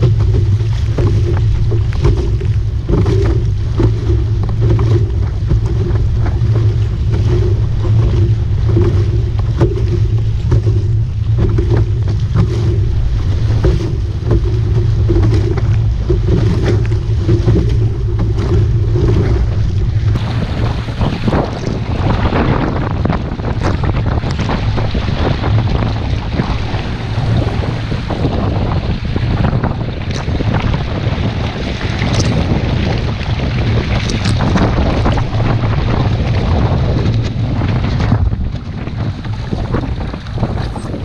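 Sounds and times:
steady low hum: 0:00.0 - 0:25.0
water splashing against hull: 0:00.0 - 0:41.0
wind buffeting microphone: 0:00.0 - 0:41.0.

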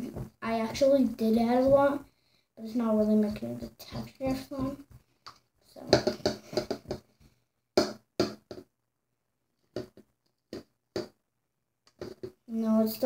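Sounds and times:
slime stirring clicks and taps: 0:11.9 - 0:12.4.

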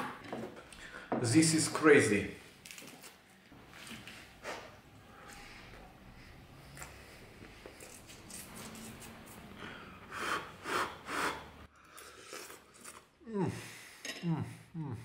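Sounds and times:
man eating mouth sounds: 0:10.3 - 0:13.6.

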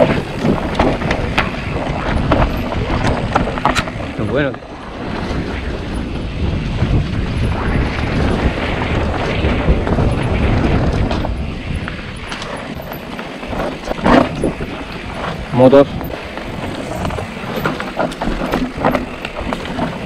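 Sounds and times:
bike knocking over rough ground: 0:00.0 - 0:04.3, 0:08.9 - 0:20.0
tyres on loose dirt: 0:00.0 - 0:20.0
wind buffeting microphone: 0:00.0 - 0:20.0.

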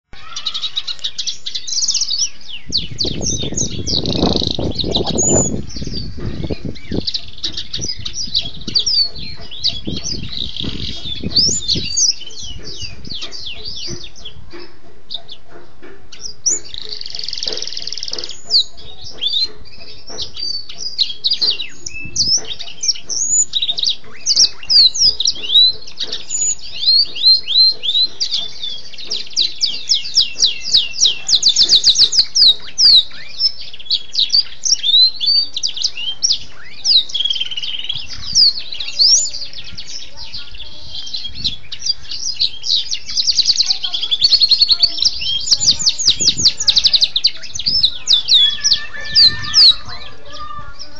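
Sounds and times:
canary singing: 0:00.0 - 0:50.9.

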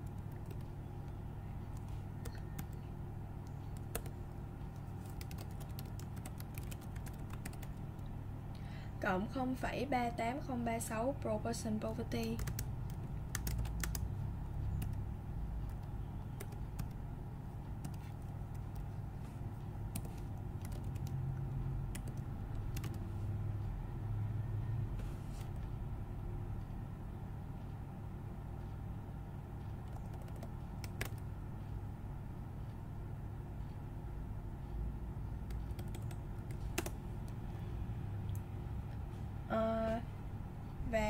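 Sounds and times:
keyboard keystrokes: 0:00.0 - 0:00.7, 0:03.7 - 0:04.2, 0:05.0 - 0:07.8, 0:12.3 - 0:14.0, 0:19.9 - 0:21.2, 0:21.9 - 0:23.0, 0:29.8 - 0:31.3, 0:35.5 - 0:37.0
low hum: 0:00.0 - 0:41.0.

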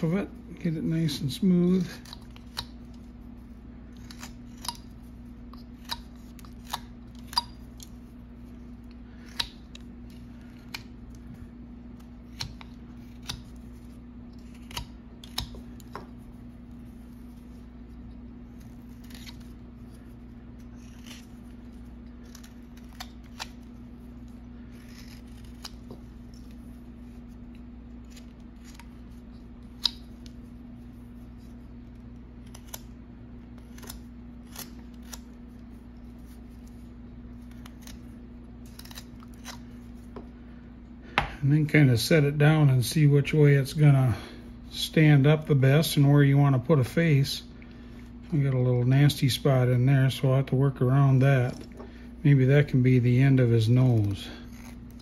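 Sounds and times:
faint steady hum: 0:00.0 - 0:55.0
knife slicing wood shavings: 0:11.9 - 0:35.4.

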